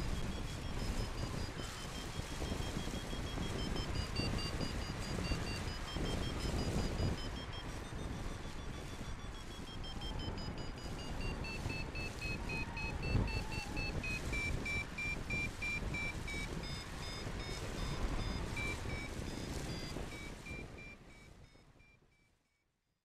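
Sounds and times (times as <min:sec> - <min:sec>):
wind on microphone: 0:00.0 - 0:21.8
variometer short beeps: 0:00.0 - 0:22.4.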